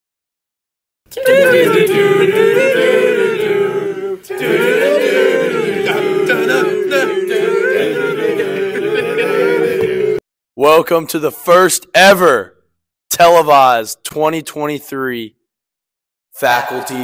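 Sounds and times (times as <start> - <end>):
voices singing a cappella: 1.1 - 10.2, 16.4 - 17.0.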